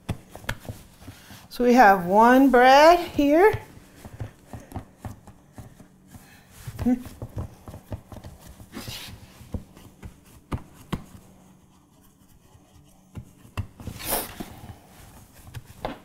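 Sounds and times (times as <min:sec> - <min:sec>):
hands pressing dough in metal pan: 0:00.0 - 0:01.4, 0:03.0 - 0:14.0.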